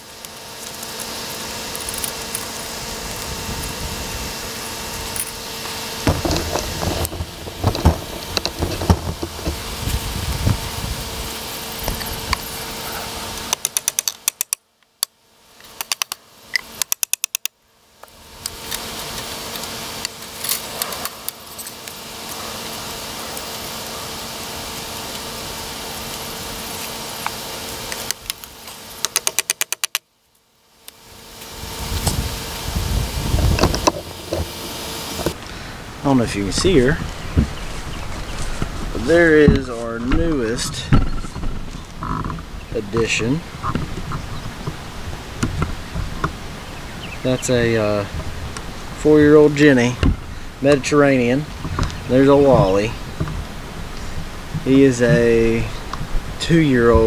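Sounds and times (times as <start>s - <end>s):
steady hum: 0.0s - 57.0s
fence wire rattling: 4.4s - 10.7s
quick clicks: 15.7s - 17.5s, 29.0s - 30.0s.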